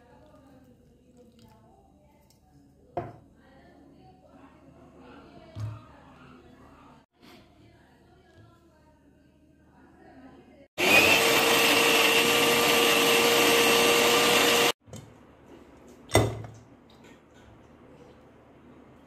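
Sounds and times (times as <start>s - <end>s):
mixer grinder motor running: 10.8s - 14.8s.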